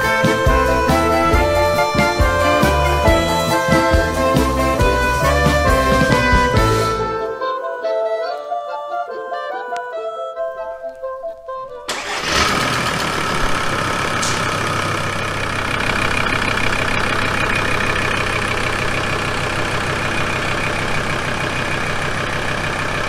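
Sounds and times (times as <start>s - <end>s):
diesel engine idling: 0.0s - 7.3s, 11.9s - 23.0s.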